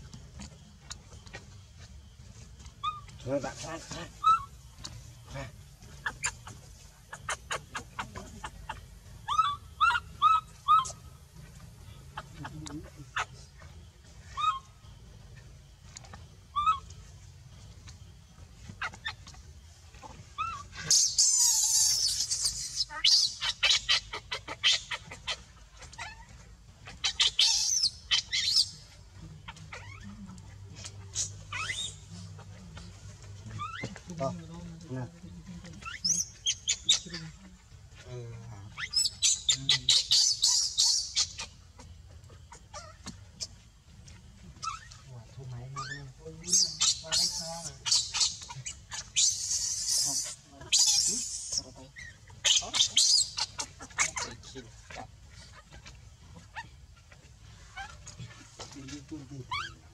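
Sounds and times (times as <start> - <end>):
baby macaque crying: 8.7 - 11.0, 20.4 - 28.7, 30.9 - 32.1, 45.8 - 54.4, 59.5 - 59.9.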